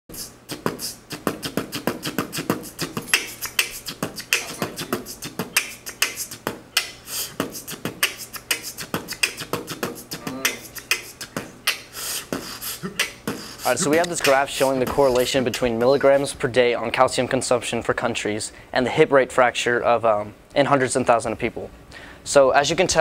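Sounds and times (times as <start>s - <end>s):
beatboxing: 0.1s - 16.4s.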